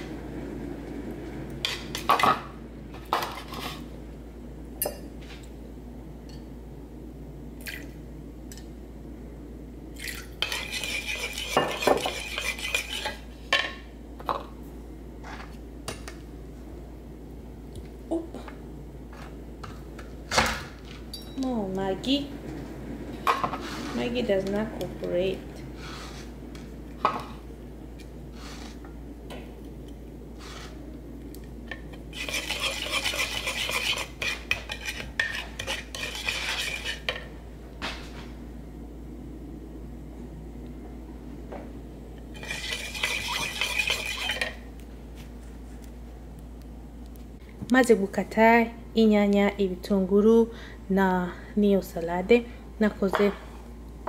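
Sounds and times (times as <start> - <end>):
spoon whisking in a wooden bowl: 10.4 - 13.2, 32.1 - 37.1, 42.4 - 44.6.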